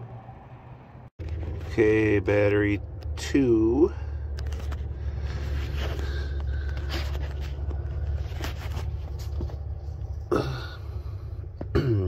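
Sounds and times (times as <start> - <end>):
steady low rumble: 0.0 - 12.0
handling noises and clicks: 4.3 - 10.2.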